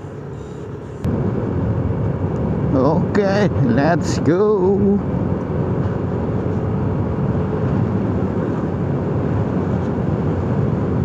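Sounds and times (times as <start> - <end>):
wind noise on microphone: 5.0 - 11.0.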